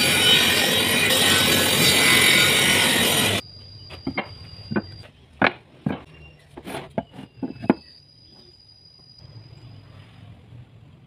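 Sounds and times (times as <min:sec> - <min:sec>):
wood-on-wood knocks: 0:04.0 - 0:07.8.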